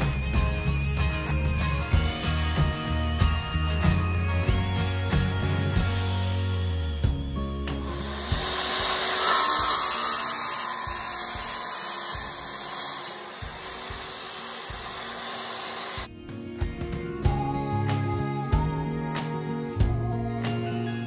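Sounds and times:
wet tile saw cutting tile: 7.8s - 16.1s.

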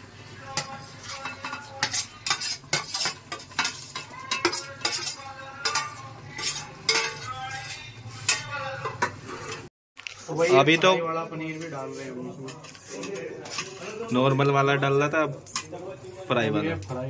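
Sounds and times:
metal spoon clinking on steel: 0.5s - 9.1s.

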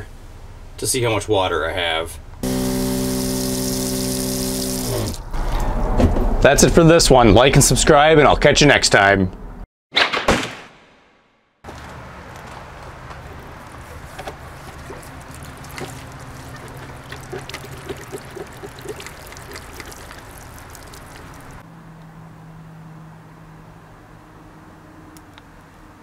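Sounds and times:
water trickling and splashing: 2.4s - 5.2s, 12.3s - 21.6s.

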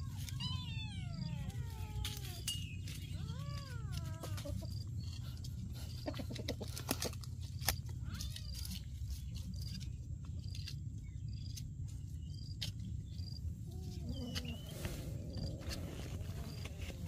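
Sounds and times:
steady low rumble: 8.8s - 17.0s.

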